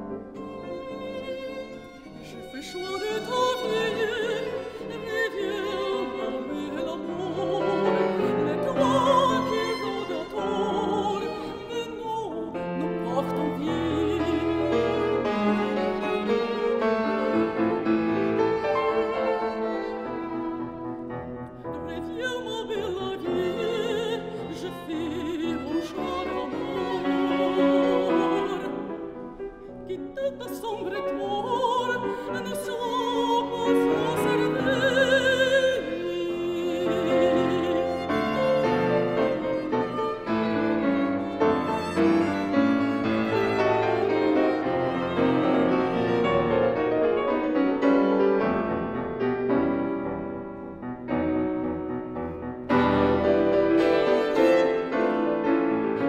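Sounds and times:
grand piano: 0:00.0 - 0:56.0
violin: 0:00.0 - 0:56.0
woman singing with vibrato: 0:02.3 - 0:14.8, 0:21.7 - 0:29.0, 0:29.9 - 0:38.4.

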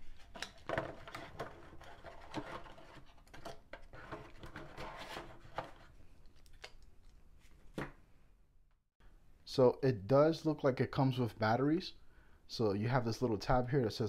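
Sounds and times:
cardboard rustling: 0:00.0 - 0:06.0.

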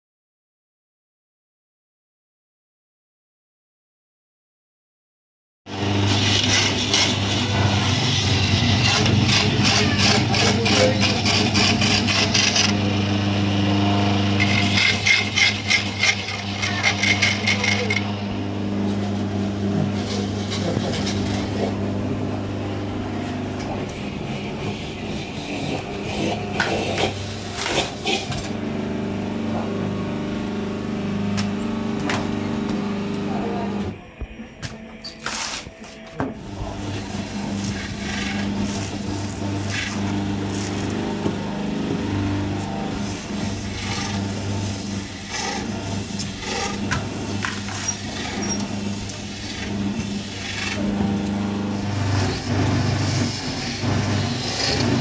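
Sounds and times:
grater motor humming: 0:05.7 - 0:34.0, 0:36.4 - 0:55.0
coconut rasping against grater: 0:05.8 - 0:21.8, 0:23.6 - 0:28.5, 0:36.6 - 0:55.0.

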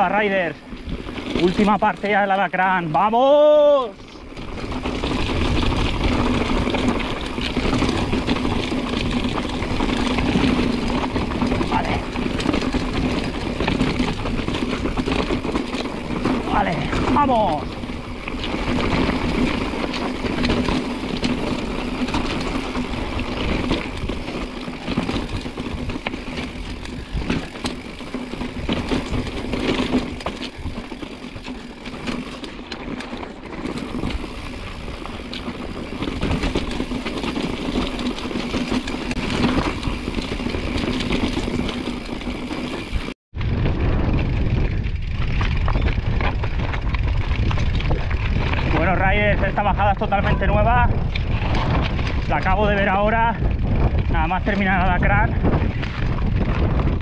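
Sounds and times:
bike rattling and knocking: 0:00.0 - 0:57.0
wind rumble on microphone: 0:03.4 - 0:57.0
tyres crunching over stones: 0:04.2 - 0:43.6.

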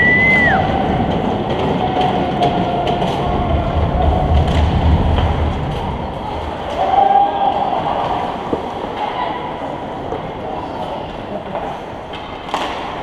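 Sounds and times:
low rumble: 0:00.0 - 0:06.8
hockey stick clicks: 0:12.1 - 0:13.0.

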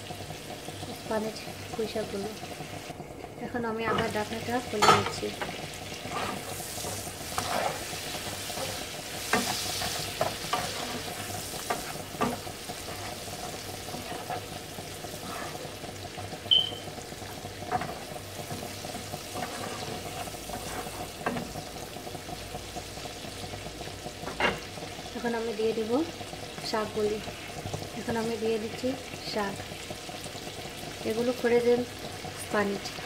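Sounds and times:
prawns sizzling in a frying pan: 0:00.0 - 0:33.0
wooden spatula scraping a pan: 0:03.9 - 0:15.9, 0:17.2 - 0:21.6
short high beep: 0:16.5 - 0:16.8.

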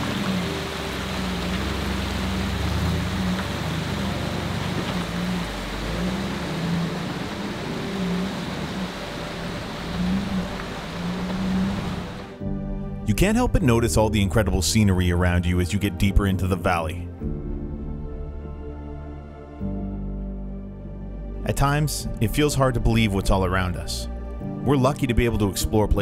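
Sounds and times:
engine revving at low speed: 0:00.0 - 0:12.4.

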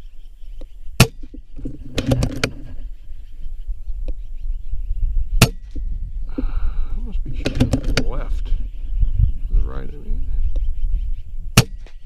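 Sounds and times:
steady low rumble: 0:00.0 - 0:12.0
air rifle shot: 0:11.5 - 0:12.0.

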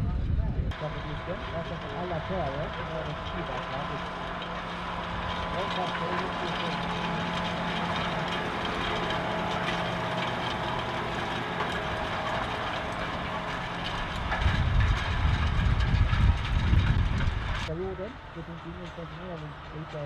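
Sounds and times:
uneven low rumble: 0:00.0 - 0:20.0
cultivator discs rattling in soil: 0:00.7 - 0:20.0
tractor diesel engine under load: 0:00.7 - 0:20.0.

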